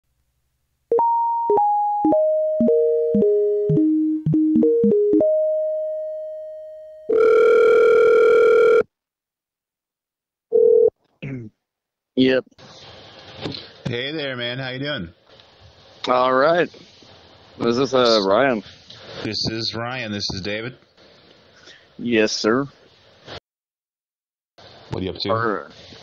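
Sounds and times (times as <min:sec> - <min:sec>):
piano-like melody: 0:00.9 - 0:07.1
telephone ringback tone: 0:00.9 - 0:08.8, 0:10.5 - 0:10.9.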